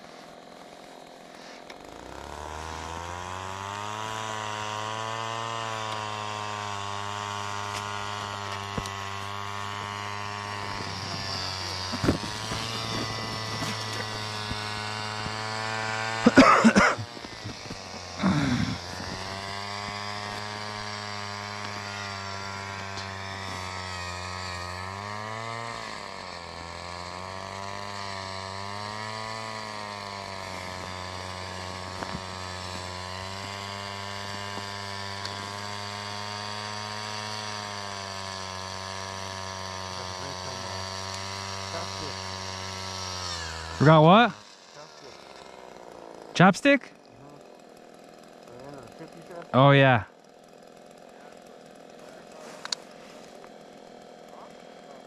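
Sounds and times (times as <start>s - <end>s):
small engine running: 0.0s - 55.0s
handling knocks and scrapes: 10.7s - 14.7s.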